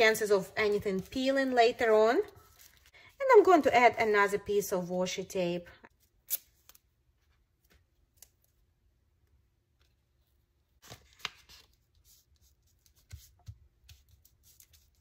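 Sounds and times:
paper rustling: 0.1s - 2.9s, 10.8s - 15.0s.

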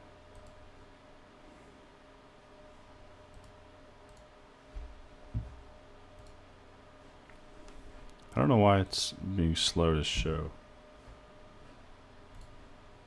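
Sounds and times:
low room hum: 0.0s - 13.0s
computer mouse clicks: 0.3s - 0.6s, 3.3s - 4.3s, 6.1s - 6.4s, 12.3s - 12.6s.

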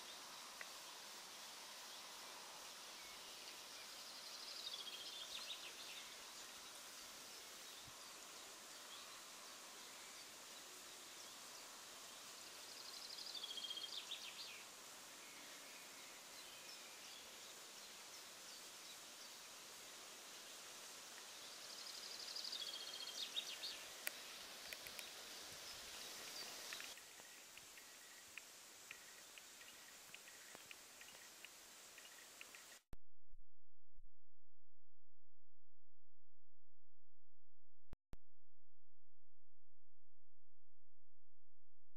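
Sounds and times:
songbird singing: 0.0s - 19.6s, 21.1s - 32.8s
steady outdoor hiss: 0.0s - 32.9s.

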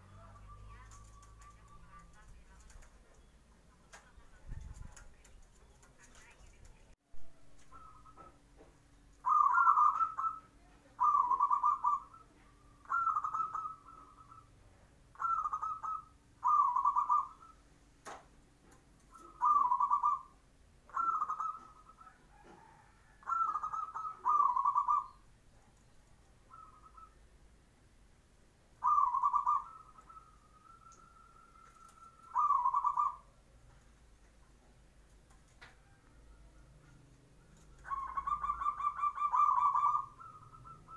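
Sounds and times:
dove cooing: 0.1s - 3.3s, 7.5s - 8.4s, 9.2s - 17.6s, 19.0s - 25.3s, 26.4s - 27.2s, 28.8s - 33.8s, 35.6s - 40.9s.

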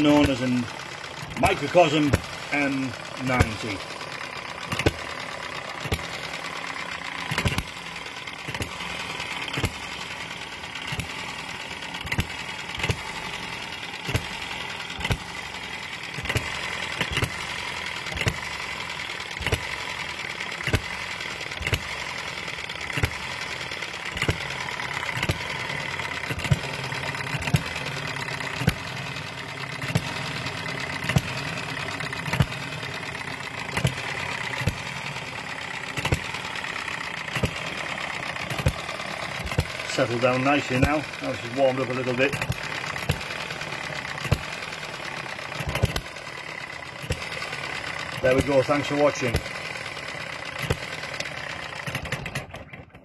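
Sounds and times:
mechanical running noise: 0.0s - 53.0s
small engine firing with sharp bangs: 0.0s - 53.0s.

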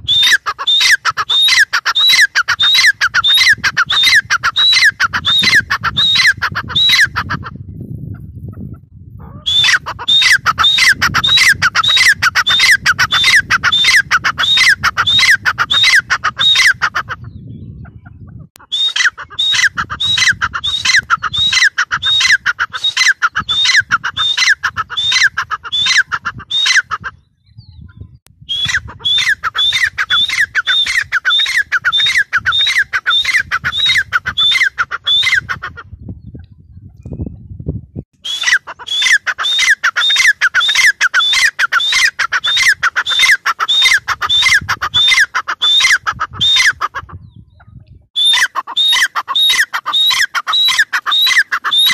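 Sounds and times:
francolin calling: 0.0s - 7.2s, 18.6s - 27.0s, 48.2s - 51.9s.

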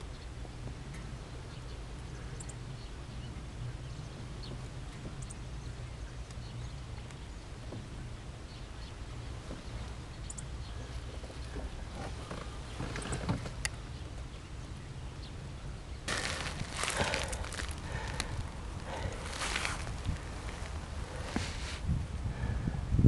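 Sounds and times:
low outdoor rumble: 0.0s - 23.0s
rustling and handling noise: 16.1s - 21.9s.

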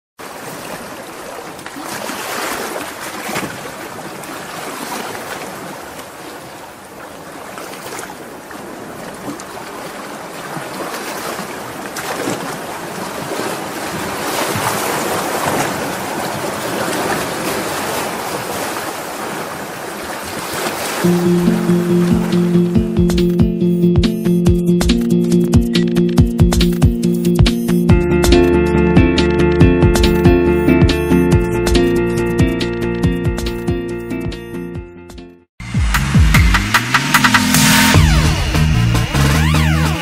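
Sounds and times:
surf washing over sand: 0.2s - 22.8s.

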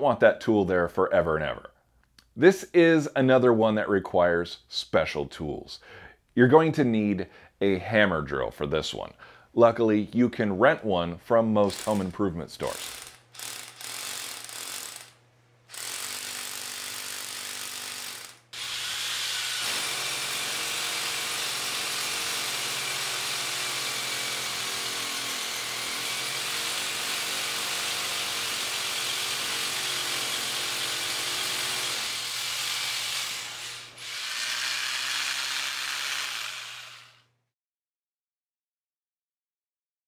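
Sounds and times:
hammer drill boring into concrete: 11.6s - 37.3s.

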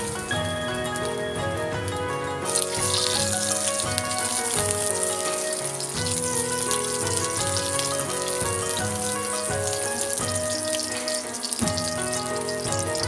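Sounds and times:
background music with held notes: 0.0s - 13.0s
garlic and onion sizzling in oil: 0.0s - 13.0s.

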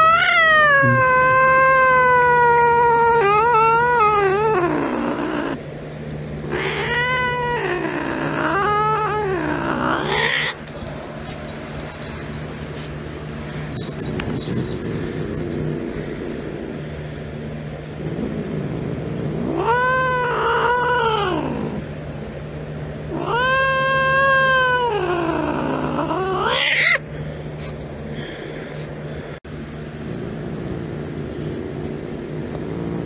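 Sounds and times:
cat yowling: 0.0s - 5.6s, 6.5s - 10.6s, 19.4s - 21.8s, 23.1s - 27.1s.

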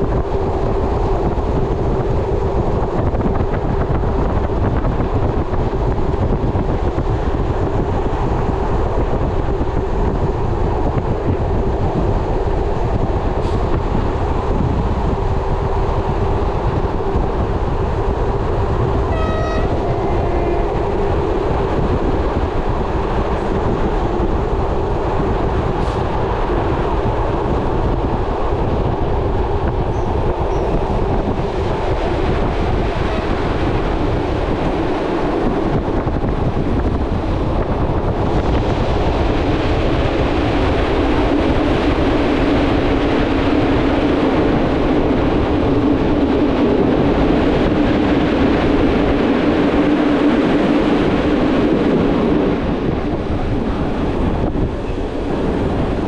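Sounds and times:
train wheels rumbling on track: 0.0s - 56.0s
brief high tone: 19.1s - 19.8s.

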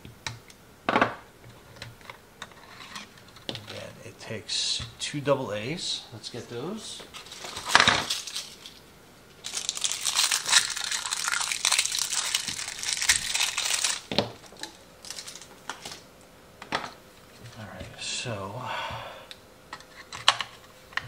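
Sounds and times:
crinkling plastic packaging: 7.2s - 16.1s.

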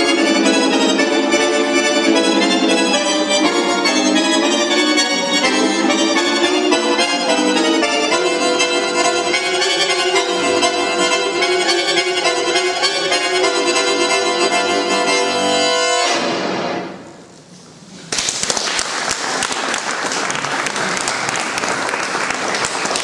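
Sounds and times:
button accordion chord: 0.0s - 16.9s
audience applause: 18.1s - 23.0s.

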